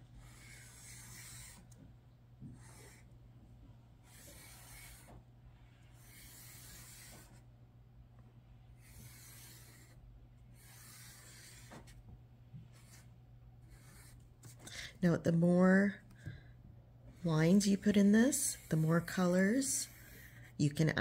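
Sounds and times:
marker scratching on paper: 0.1 - 1.8, 2.4 - 3.1, 4.0 - 7.5, 8.7 - 12.0, 12.6 - 14.7, 17.1 - 20.4.

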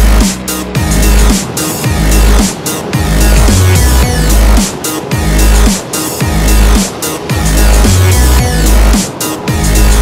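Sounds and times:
electronic music with heavy bass: 0.0 - 10.0.

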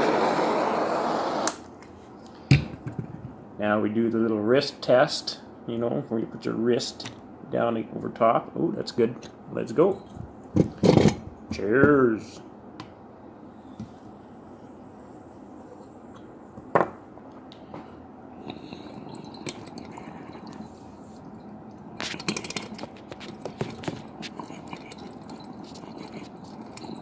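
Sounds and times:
water bubbling in glass pipe: 18.4 - 27.0.

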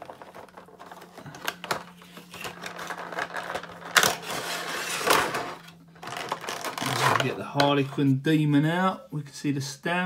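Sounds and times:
plastic crinkling: 0.0 - 7.4.

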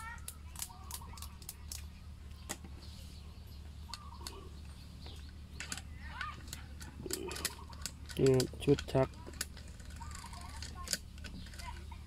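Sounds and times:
low steady hum: 0.0 - 12.0
bird chirps: 0.2 - 8.2
metal parts clicking and tapping: 5.6 - 11.8.

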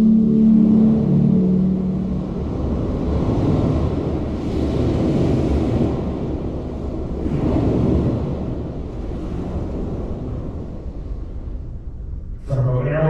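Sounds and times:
ensemble held chord: 0.0 - 4.9.

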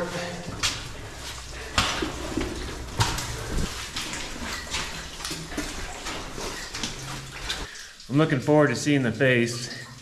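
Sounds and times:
boots splashing through water: 0.0 - 7.7.

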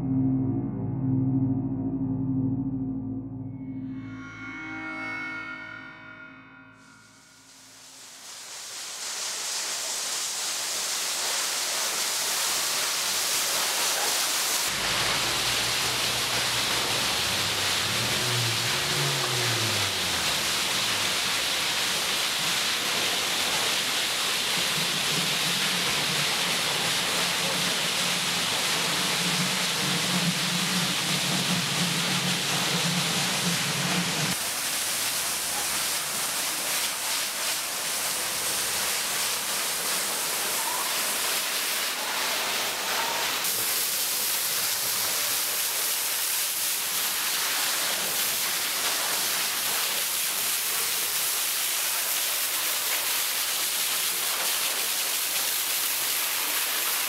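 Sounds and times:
water jet spraying: 8.1 - 57.0
low machine hum: 14.7 - 21.4.

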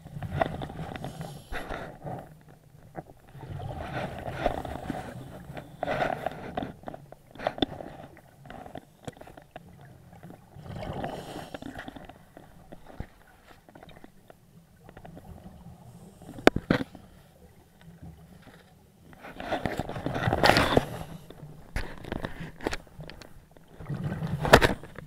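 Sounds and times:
small clicks and knocks: 4.4 - 10.4, 16.2 - 17.0, 17.8 - 23.7.

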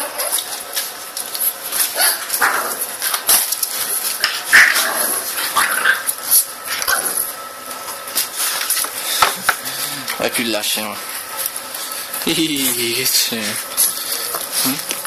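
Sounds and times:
dogs barking and yipping: 0.0 - 7.4.

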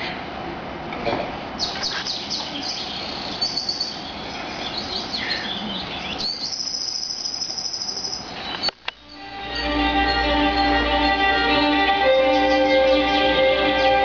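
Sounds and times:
birds chirping: 1.6 - 14.0
high insect-like trill: 6.5 - 8.3
violin music: 9.0 - 14.0.

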